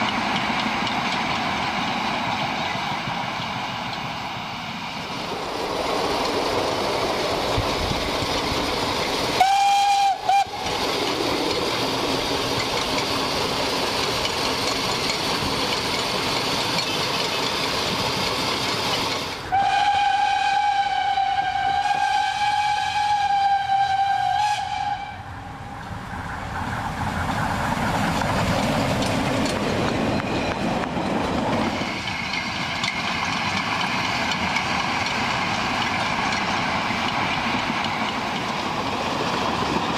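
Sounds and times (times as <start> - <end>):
moving steam train: 0.0 - 39.9
steam locomotive whistle: 9.4 - 10.7, 19.5 - 25.6.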